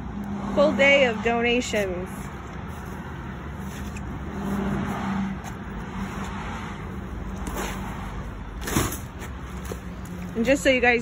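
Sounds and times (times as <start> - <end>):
vehicle passing by: 0.0 - 8.6
road traffic noise: 0.0 - 11.0.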